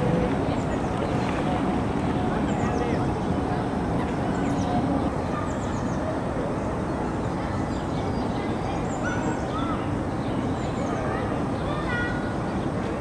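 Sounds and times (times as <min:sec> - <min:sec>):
outdoor background rumble: 0:00.0 - 0:06.7.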